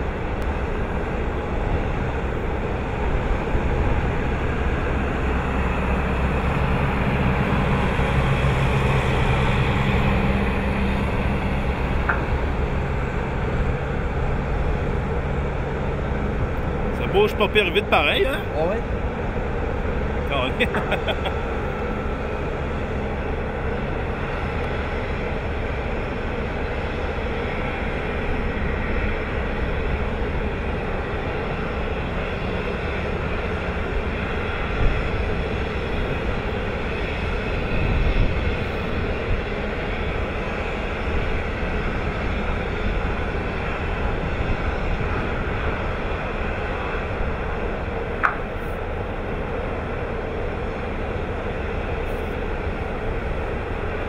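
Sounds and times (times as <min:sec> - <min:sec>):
conveyor machinery rumble: 0:00.0 - 0:54.0.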